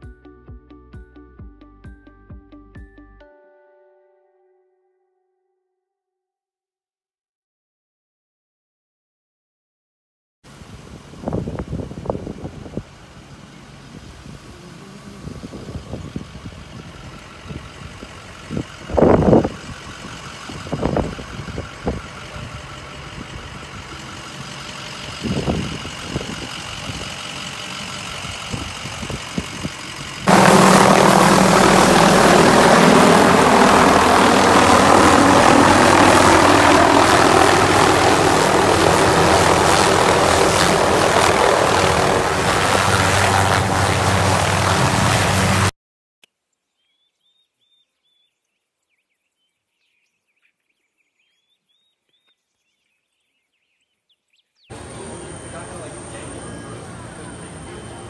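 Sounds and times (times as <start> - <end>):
helicopter engine and rotor drone: 16.3 - 45.7, 54.7 - 58.0.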